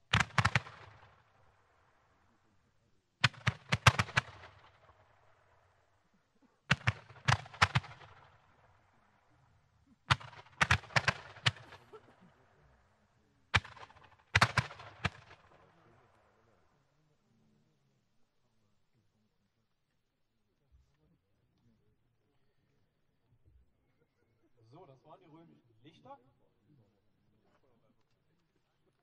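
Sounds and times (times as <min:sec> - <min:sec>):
roman candle launch reports: 0:06.4 - 0:17.9.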